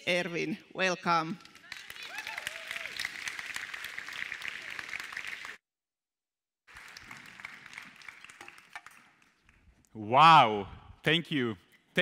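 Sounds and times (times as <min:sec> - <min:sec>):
audience applauding: 0:01.6 - 0:05.6, 0:06.7 - 0:09.5.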